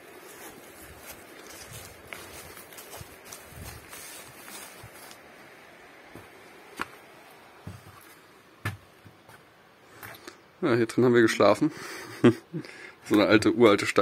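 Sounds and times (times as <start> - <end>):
soft footsteps: 0.0 - 10.2.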